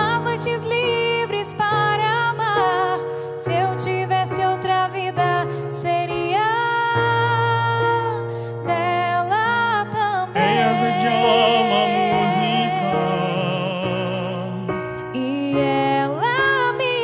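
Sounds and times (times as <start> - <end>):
man and woman singing duet: 8.7 - 17.0
band accompaniment: 10.4 - 15.1.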